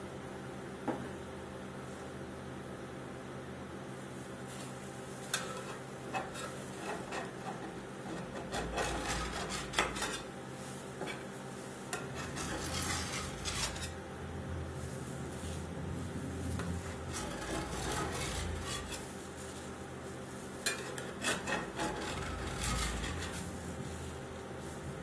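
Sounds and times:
steady low hum: 0.0 - 25.0
metal scraper scraping steel pan: 5.4 - 10.3, 11.9 - 14.0, 16.6 - 19.2, 20.6 - 23.7.

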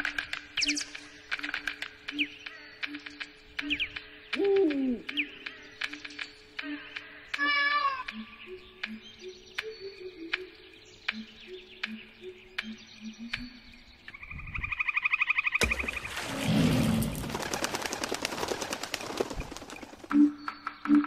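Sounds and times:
sharp clicks: 0.0 - 14.2
soft background music: 0.0 - 14.9, 20.1 - 21.0
bird's rapid trilled call: 0.6 - 6.3
fast fluttering rustle: 15.9 - 20.1.

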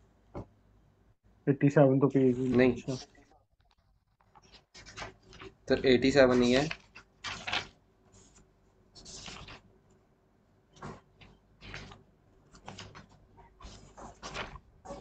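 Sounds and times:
paper pages rustling: 2.4 - 9.7, 10.7 - 15.0.

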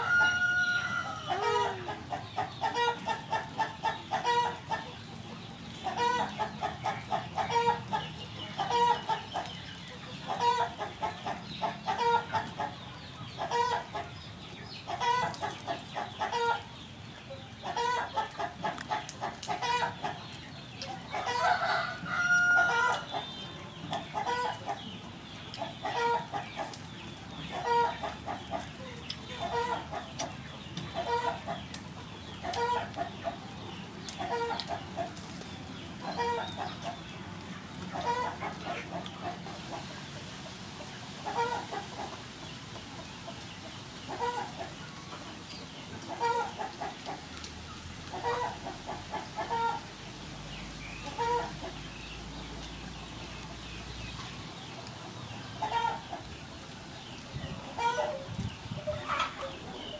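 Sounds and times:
rooster crowing: 0.0 - 1.6, 21.4 - 23.0
chickens clucking: 0.0 - 59.9.

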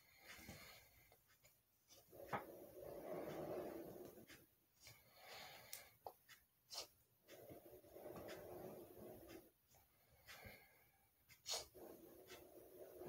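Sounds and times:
sharp nasal intakes of breath: 10.3 - 12.4
breaths blowing up balloon: 10.3 - 13.0.

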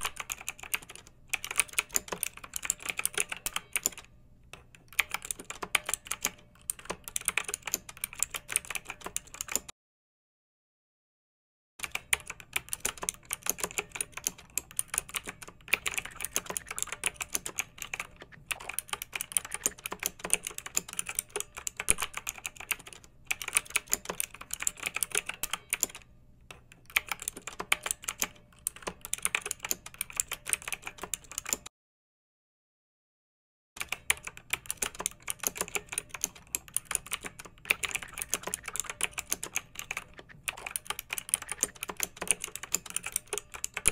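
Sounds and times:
fast tapping and clicking: 33.9 - 43.9.

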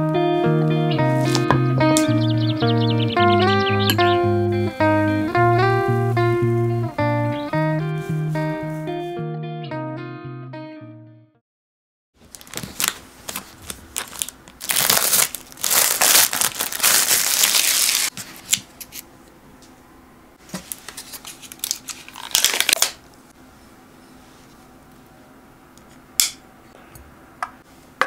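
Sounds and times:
plastic packaging crinkling and tearing: 12.2 - 18.1, 20.6 - 23.0.

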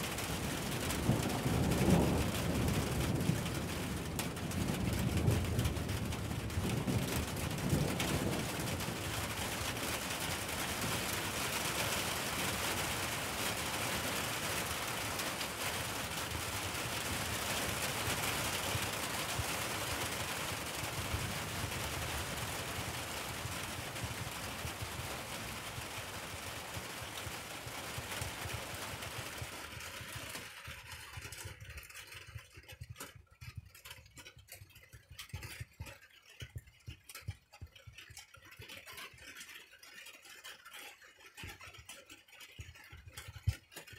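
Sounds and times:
rain pouring: 0.0 - 32.6
low rumble of thunder: 0.2 - 9.9, 15.6 - 28.7.

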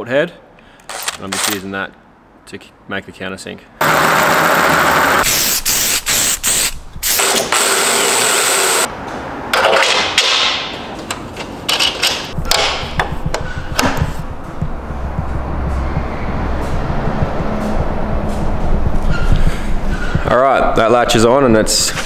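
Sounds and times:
cordless drill cutting metal: 7.2 - 8.9
metal clicks and knocks: 9.6 - 14.7
low rumble: 12.4 - 21.5.

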